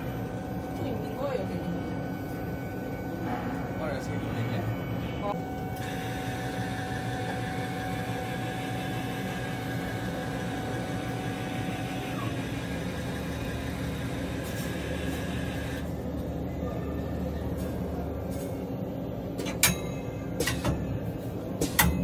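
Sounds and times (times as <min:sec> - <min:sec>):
machine hum: 0:00.0 - 0:22.0
motor whine: 0:05.4 - 0:15.9.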